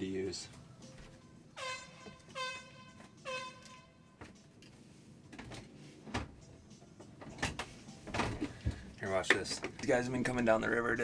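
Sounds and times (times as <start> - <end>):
horn blast: 1.6 - 4.2.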